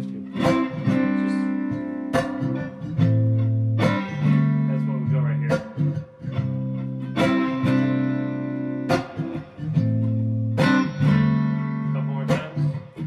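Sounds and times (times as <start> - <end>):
guitar strumming chords: 0.0 - 13.0.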